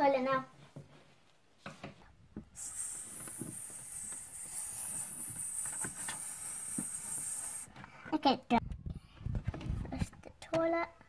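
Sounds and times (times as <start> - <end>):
child making hissing sound: 2.6 - 7.8.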